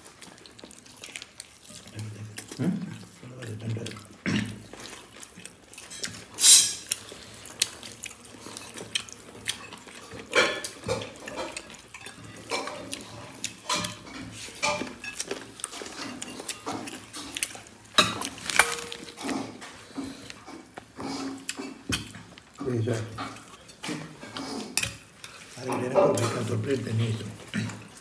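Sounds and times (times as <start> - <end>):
eating by hand from plate: 0.0 - 28.0
plates and cutlery clinking: 5.8 - 7.0, 9.5 - 22.3, 22.9 - 27.9.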